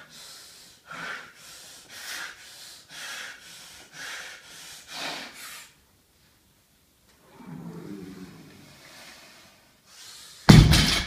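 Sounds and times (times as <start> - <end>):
person breathing hard: 0.0 - 5.8, 8.2 - 10.6.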